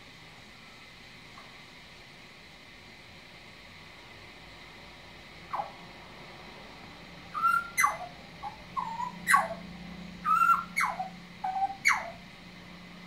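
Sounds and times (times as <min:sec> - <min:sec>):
bird whistling song: 0:07.3 - 0:12.2.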